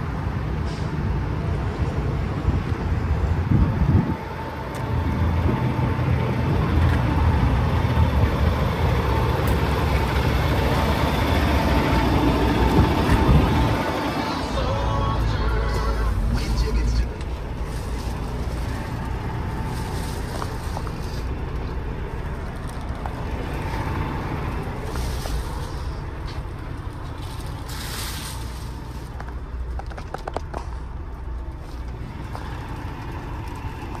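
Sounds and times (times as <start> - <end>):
diesel truck engine idling: 0.0 - 34.0
handling clicks and rustles: 17.1 - 34.0.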